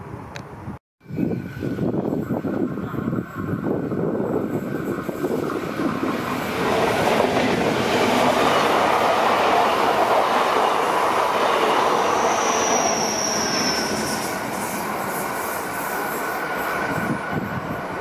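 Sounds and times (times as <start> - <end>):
train wheels rushing on rail: 1.2 - 18.0
high wheel squeal: 10.7 - 17.8.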